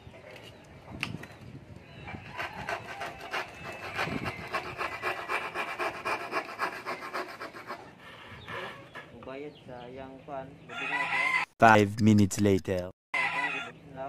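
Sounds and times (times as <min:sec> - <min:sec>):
hand tool rasping on wood: 0:02.4 - 0:09.2.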